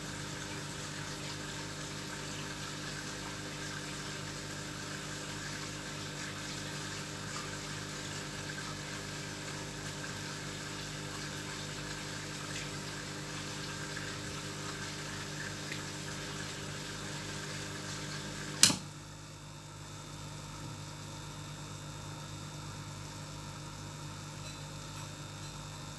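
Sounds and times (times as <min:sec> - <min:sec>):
aquarium pump hum: 0:00.0 - 0:25.9.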